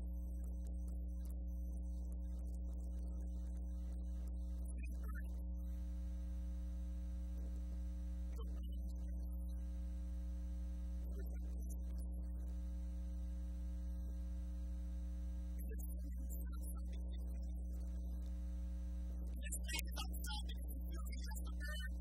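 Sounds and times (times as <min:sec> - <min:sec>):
electrical mains hum: 0:05.7 - 0:22.0.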